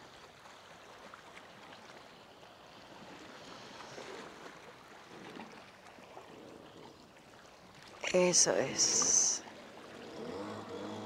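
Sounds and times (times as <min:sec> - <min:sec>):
sea water lapping on rocks: 0:00.2 - 0:10.8.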